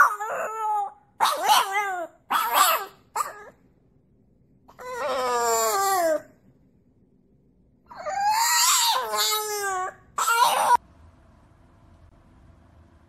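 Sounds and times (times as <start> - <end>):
puppy howling: 0.0 - 3.6, 4.7 - 6.3, 7.9 - 10.8.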